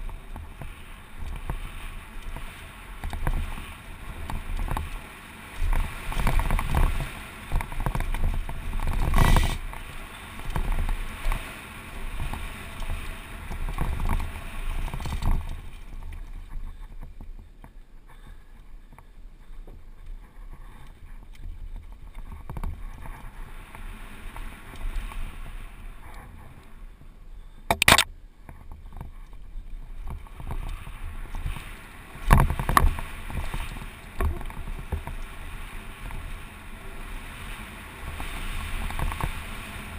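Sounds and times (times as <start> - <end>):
bike rattling over bumps: 0.0 - 39.9.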